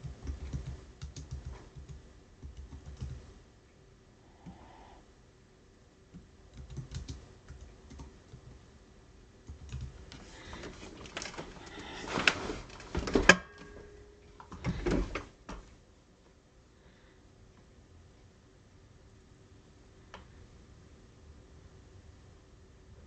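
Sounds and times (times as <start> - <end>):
keyboard typing clicks: 0.0 - 3.3, 6.1 - 8.6, 9.5 - 10.3.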